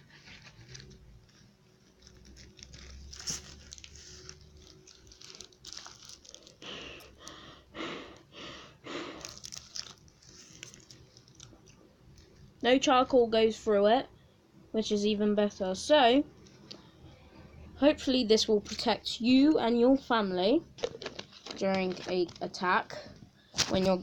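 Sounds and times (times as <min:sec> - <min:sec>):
gas mask crinkling and rustling: 0:00.0 - 0:07.4, 0:09.1 - 0:12.6, 0:20.7 - 0:24.0
noisy breaths through mask: 0:06.4 - 0:09.4.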